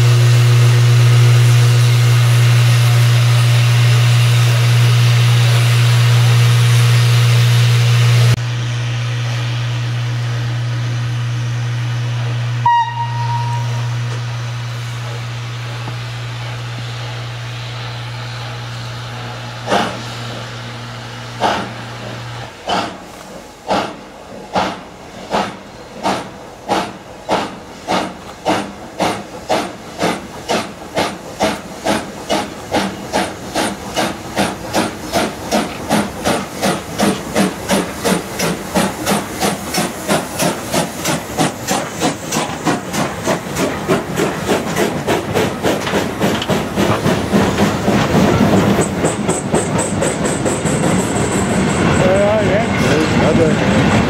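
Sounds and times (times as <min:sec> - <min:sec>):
steam locomotive exhaust chuff: 0:00.0 - 0:54.0
wheels rumbling on rail: 0:00.0 - 0:54.0
steam hiss: 0:12.0 - 0:53.5.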